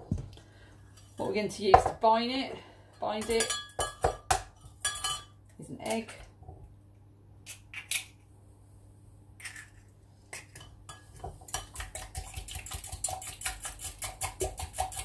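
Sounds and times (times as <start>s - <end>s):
whisk clinking against glass: 4.8s - 5.3s.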